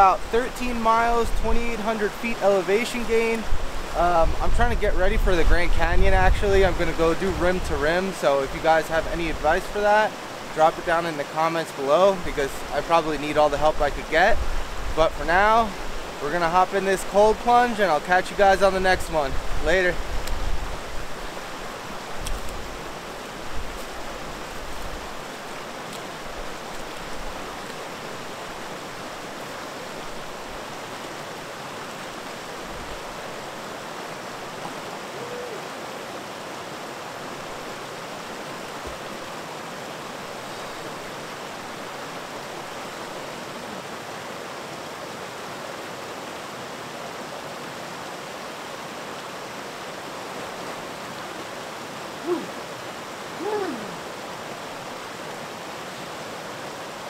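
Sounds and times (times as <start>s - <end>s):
creek water rushing: 0.0s - 57.0s.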